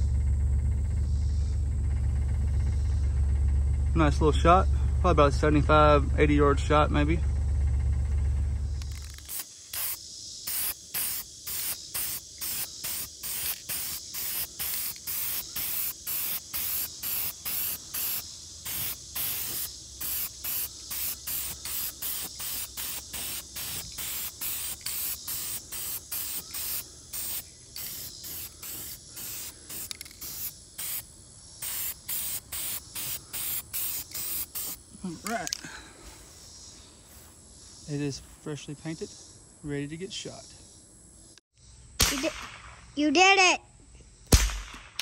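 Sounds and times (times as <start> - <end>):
spray paint can hissing: 8.8 - 34.8.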